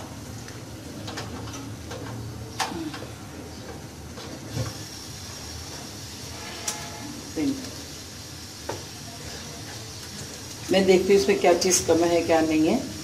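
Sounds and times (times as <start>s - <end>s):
meat sizzling in frying pan: 4.4s - 13.0s.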